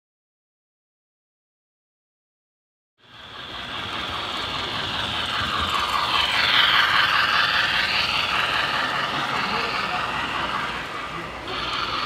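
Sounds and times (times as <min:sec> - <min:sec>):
model train rattling on track: 0:03.0 - 0:12.0.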